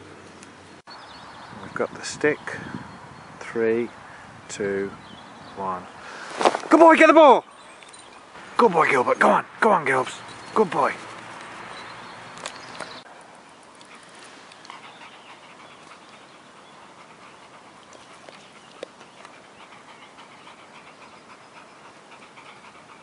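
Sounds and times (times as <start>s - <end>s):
dogs panting: 7.6s - 23.0s.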